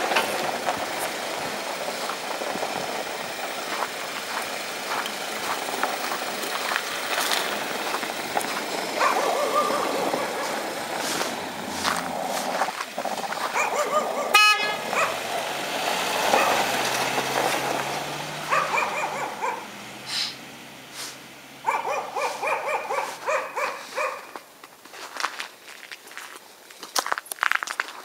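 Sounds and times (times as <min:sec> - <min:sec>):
car engine driving off: 0:00.0 - 0:24.6
dogs barking: 0:07.8 - 0:15.3, 0:16.3 - 0:16.7, 0:18.4 - 0:20.2, 0:21.6 - 0:24.4
car horn toot: 0:14.3 - 0:15.2.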